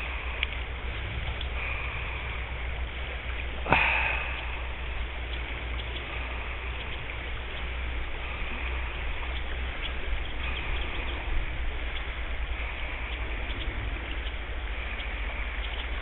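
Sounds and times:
low constant rumble: 0.0 - 16.0
water rushing over stones: 0.0 - 16.0
faint splashy ticks: 0.3 - 0.7, 1.3 - 1.6, 5.2 - 7.7, 13.1 - 16.0.

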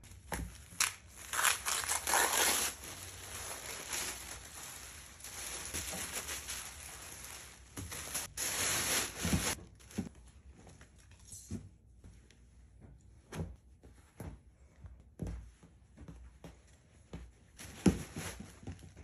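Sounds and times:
tissue paper rustling and crinkling: 0.0 - 10.2, 17.5 - 19.0.

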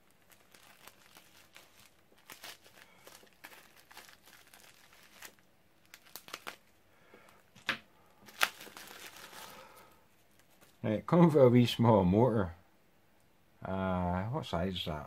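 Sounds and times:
bubble wrap crinkling and tearing: 0.0 - 10.8
plastic crackles: 0.0 - 10.8.

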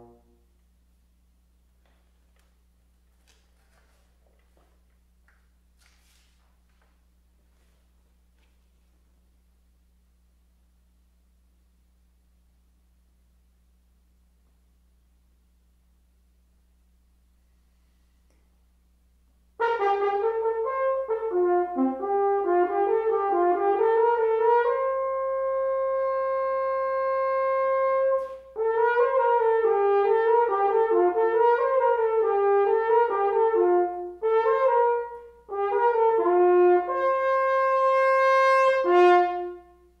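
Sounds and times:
solo french horn playing: 0.0 - 0.6, 19.6 - 40.0.

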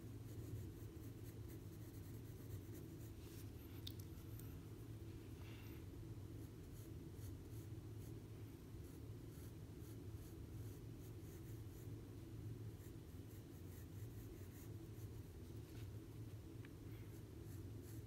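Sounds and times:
pencil scratching on paper: 0.0 - 3.7, 6.3 - 12.0, 12.7 - 15.9, 16.9 - 18.0
low room hum: 0.0 - 18.0.

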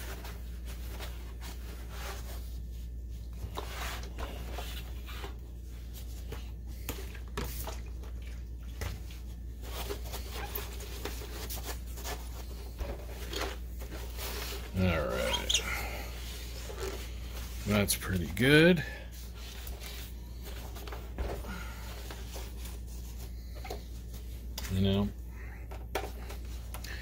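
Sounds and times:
paper towel rubbing plastic: 0.0 - 6.6, 9.0 - 18.4
steady low hum: 0.0 - 27.0.

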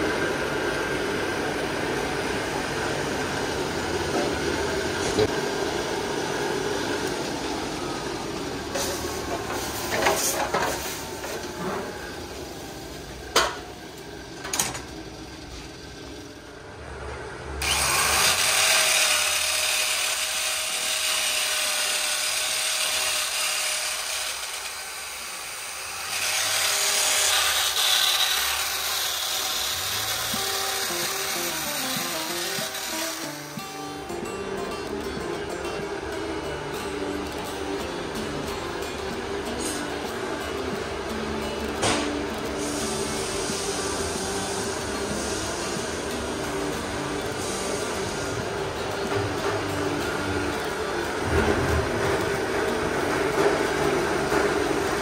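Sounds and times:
electric drill running: 17.6 - 33.9
forge fire hissing: 42.6 - 46.1, 47.3 - 48.8.

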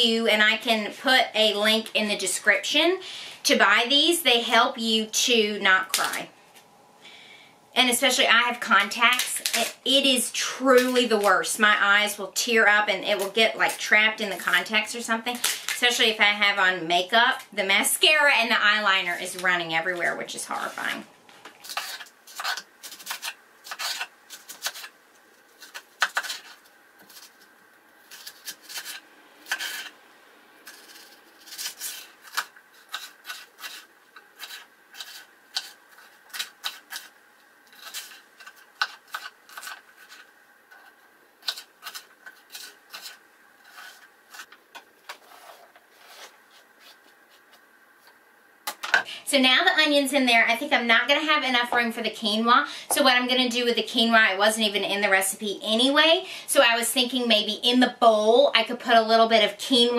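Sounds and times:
onion skin rustling: 19.2 - 30.0, 30.6 - 48.2.

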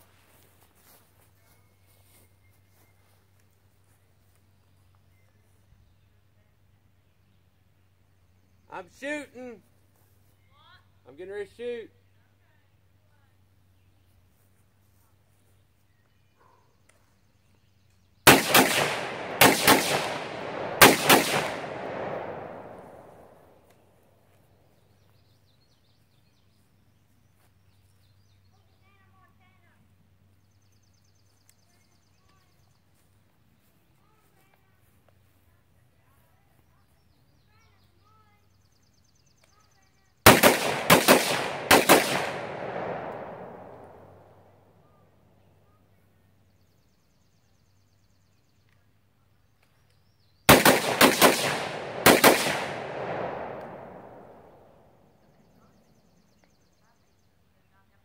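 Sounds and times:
long echo of gunshots: 18.2 - 23.6, 40.2 - 44.4, 50.5 - 54.9
rifle shots: 18.2 - 23.6, 40.3 - 44.3, 50.5 - 54.8.

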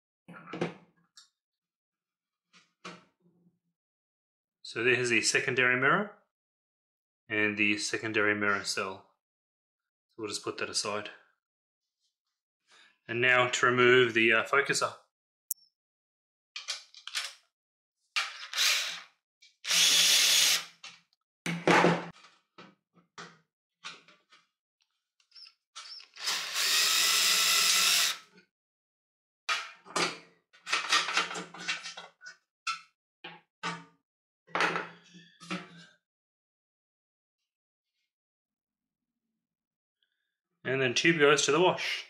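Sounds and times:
clicks and knocks of parts handled: 16.6 - 17.4
cordless drill running: 18.4 - 19.0, 19.7 - 20.7, 25.9 - 28.2.

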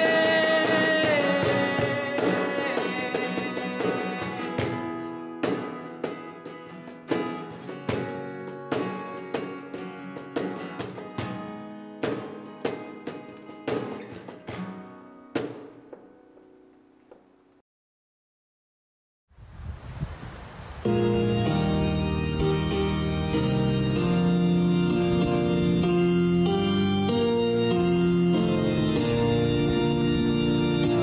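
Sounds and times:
cajon hits: 0.0 - 16.1
acoustic guitar strumming: 0.0 - 17.5, 20.9 - 31.0.

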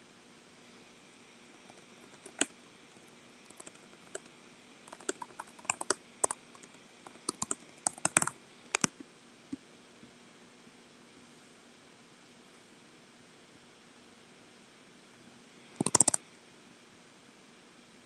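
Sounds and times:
computer keyboard typing: 1.6 - 4.3, 4.9 - 9.0, 15.8 - 16.2.

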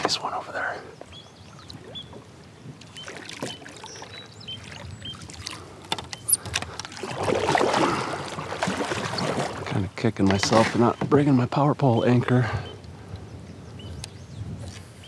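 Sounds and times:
paddle splashing through water: 0.0 - 11.3
light clicks and knocks: 5.8 - 7.0.

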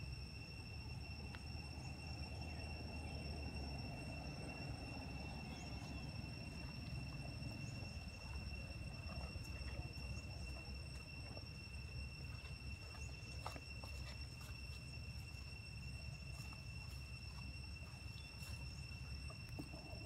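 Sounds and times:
insects trilling: 0.0 - 20.0.

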